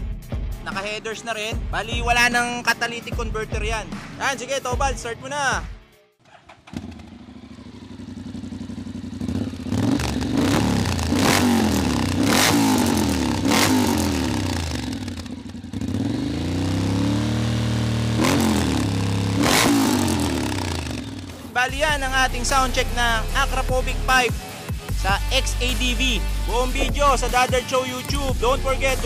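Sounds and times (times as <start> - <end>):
motorcycle engine starting and revving: 6.2 - 24.2, 25.2 - 29.0.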